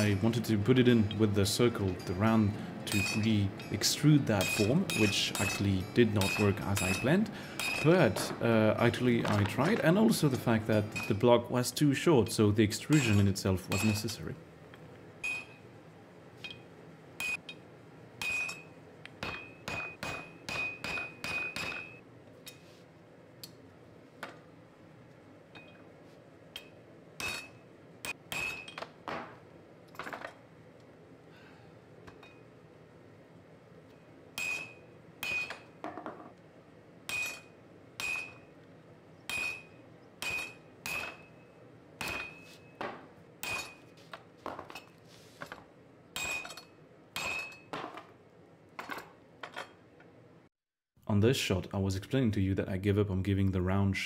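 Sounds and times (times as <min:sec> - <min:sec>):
hammer striking on anvil: 0:01.0 - 0:11.2, 0:12.9 - 0:14.0, 0:17.2 - 0:17.5, 0:18.2 - 0:22.0, 0:26.6 - 0:29.4, 0:34.4 - 0:36.2, 0:37.1 - 0:38.4, 0:39.3 - 0:41.3, 0:42.0 - 0:43.9, 0:46.2 - 0:47.9.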